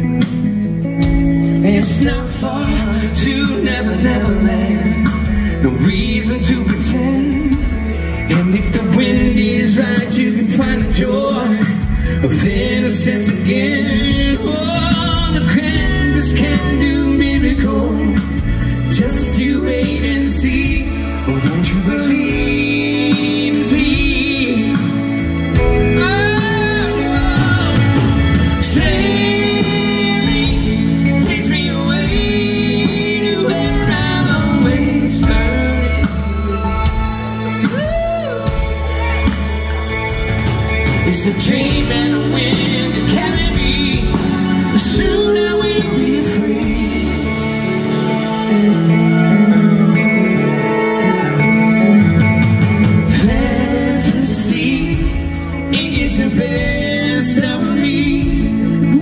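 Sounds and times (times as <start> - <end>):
live band playing soft rock: 0.0 - 59.0
male lead vocal: 0.0 - 59.0
women singing backing vocals: 26.0 - 38.2, 41.1 - 48.0.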